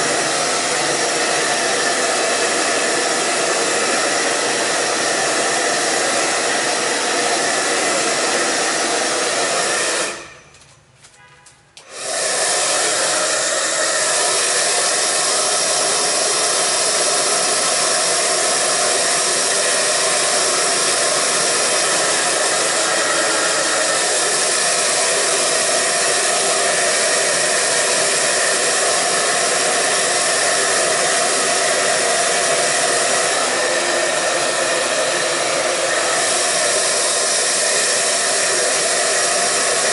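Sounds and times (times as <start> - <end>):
hair dryer blowing: 0.0 - 10.5, 11.8 - 39.9.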